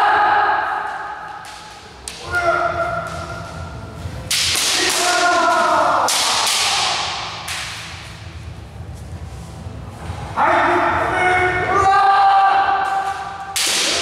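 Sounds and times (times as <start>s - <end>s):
bamboo swords striking: 0.9s - 3.4s, 4.3s - 8.1s, 12.8s - 14.0s.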